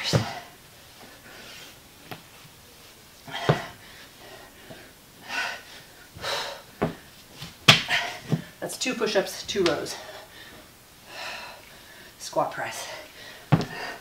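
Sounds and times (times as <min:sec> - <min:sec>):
person breathing hard: 0:03.2 - 0:07.1, 0:09.9 - 0:12.2, 0:12.8 - 0:14.0.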